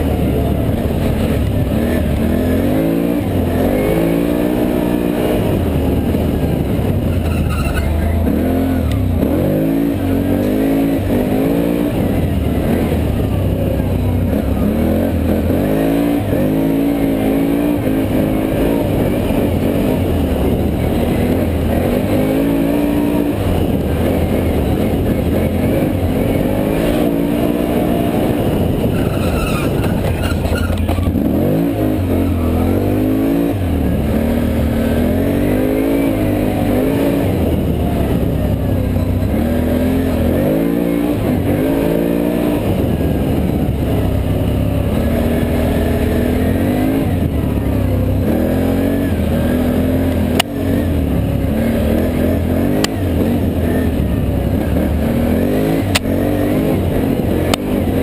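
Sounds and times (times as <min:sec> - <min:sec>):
atv engine revving: 0:00.0 - 0:58.0.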